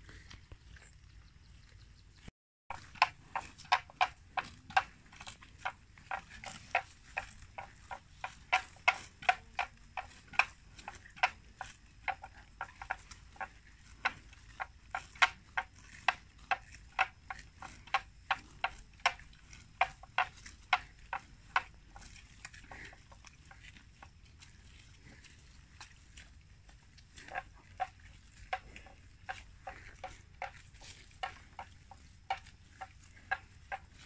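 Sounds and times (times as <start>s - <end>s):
buffalo tearing grass: 2.7s - 34.0s.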